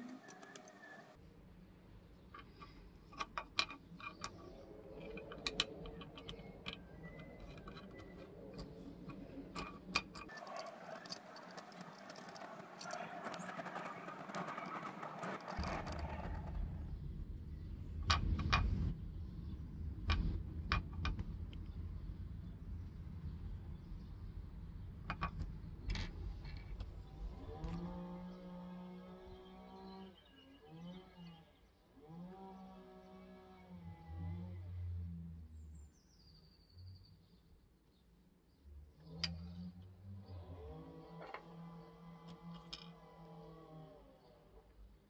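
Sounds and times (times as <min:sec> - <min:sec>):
metallic clicks of screws: 0:00.0 - 0:01.2, 0:02.3 - 0:16.3
screw rubbing and scraping: 0:00.0 - 0:01.2, 0:02.4 - 0:16.9.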